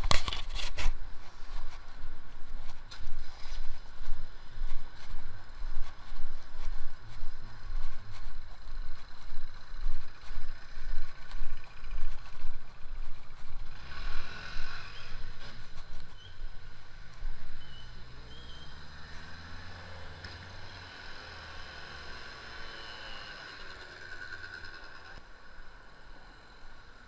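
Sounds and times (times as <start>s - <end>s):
wind and handling rumble: 0.0s - 19.3s
faint street traffic: 0.0s - 27.0s.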